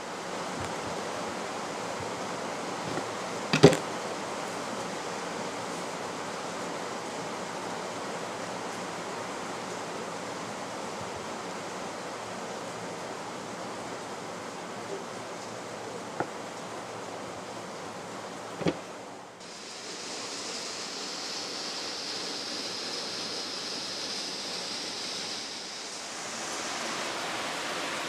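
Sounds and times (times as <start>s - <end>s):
steady background hiss: 0.0s - 28.0s
knock on wooden cutting board: 18.6s - 18.8s.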